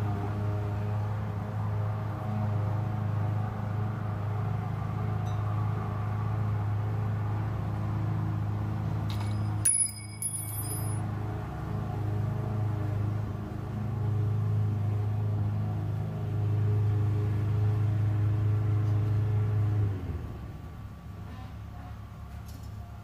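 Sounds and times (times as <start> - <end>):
high ringing tones: 9.2 - 11.0.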